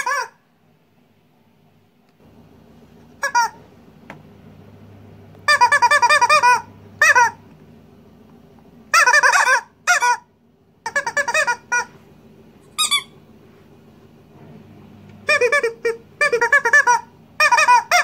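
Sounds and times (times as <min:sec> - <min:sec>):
squeaky toys squeaking: 0:00.0 - 0:00.4, 0:03.2 - 0:03.6, 0:05.5 - 0:07.4, 0:08.9 - 0:11.9, 0:12.7 - 0:13.2, 0:15.3 - 0:18.0.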